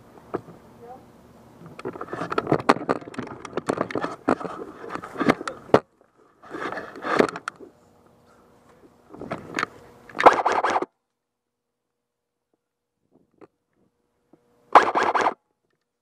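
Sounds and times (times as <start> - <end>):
sharp clicks and crackles: 1.6 - 7.6, 9.3 - 11.2, 14.7 - 16.0
clothing and equipment rustling: 6.1 - 7.8.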